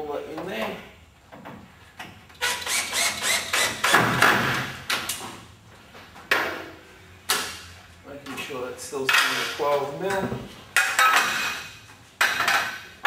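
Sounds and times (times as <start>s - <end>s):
cordless drill driving a screw: 2.4s - 4.0s.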